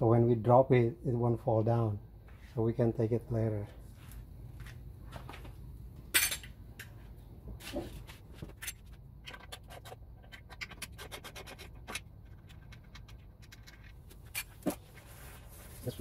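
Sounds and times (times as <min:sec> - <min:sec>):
sharp metallic clack: 0:06.1 - 0:06.9.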